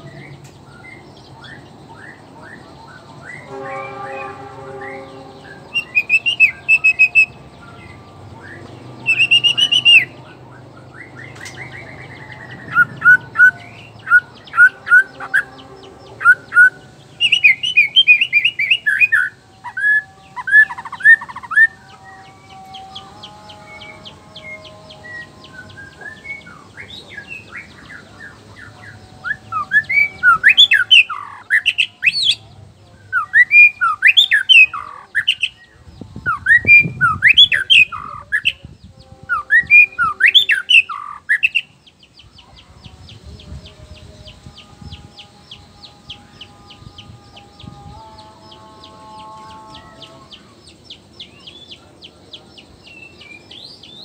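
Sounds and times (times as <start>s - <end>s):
bird singing clear whistles: 9.1s - 10.1s.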